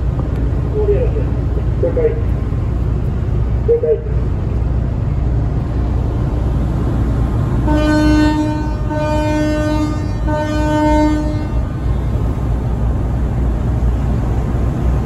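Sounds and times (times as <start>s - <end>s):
ship's horn blasts: 7.6s - 12.4s.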